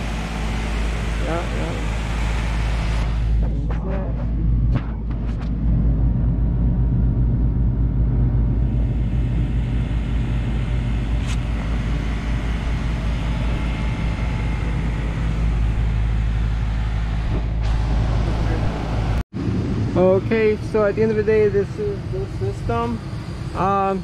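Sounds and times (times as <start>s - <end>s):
air conditioner humming: 0.0s - 24.0s.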